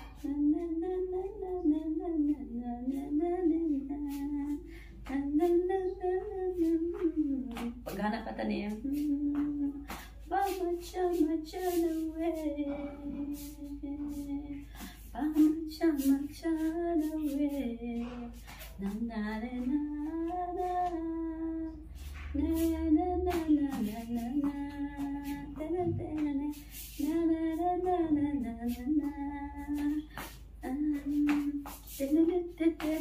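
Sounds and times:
woman singing unaccompanied: 0.0s - 33.0s.

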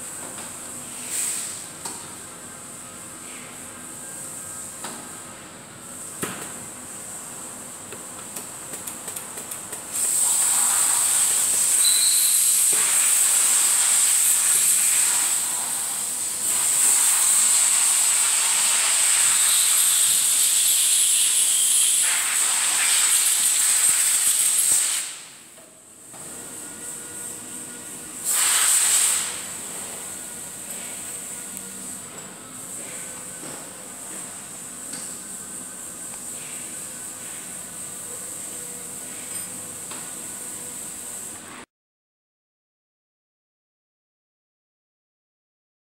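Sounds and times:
sealing machine air hiss: 0.8s - 1.8s, 9.8s - 25.5s, 26.3s - 41.5s.

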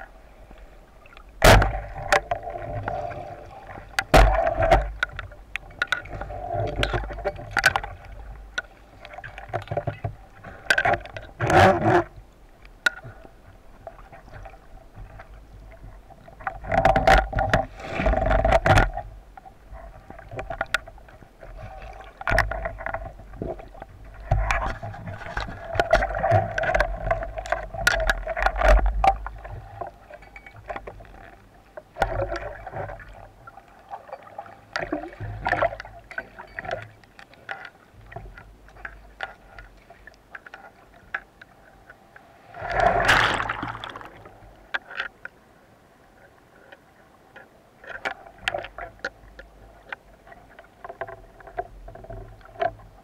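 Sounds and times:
underwater wave surge rumbling: 42.2s - 44.7s.

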